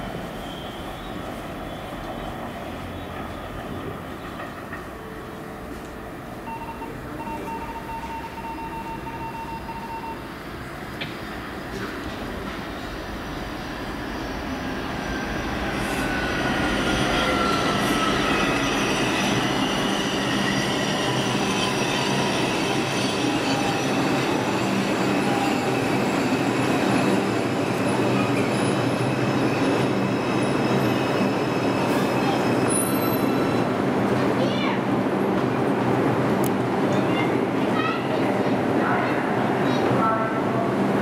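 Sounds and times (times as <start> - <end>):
subway motor whine: 0.0 - 34.2
wheel and rail noise: 10.2 - 39.0.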